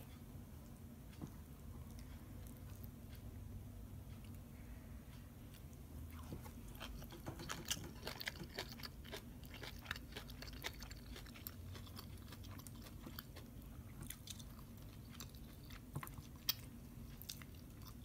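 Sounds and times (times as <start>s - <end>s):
crunchy chewing of raw beans: 5.5s - 18.0s.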